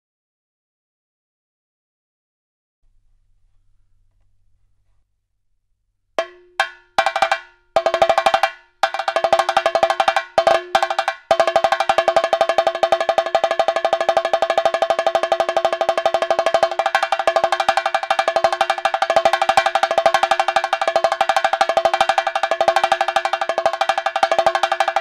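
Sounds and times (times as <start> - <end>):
drum struck with sticks: 6.2 - 25.0.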